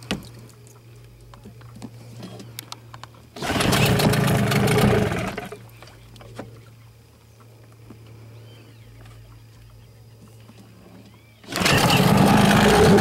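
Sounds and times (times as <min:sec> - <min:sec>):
faint low hum: 0:00.0 - 0:13.0
outboard motor revving: 0:03.4 - 0:05.6, 0:11.4 - 0:13.0.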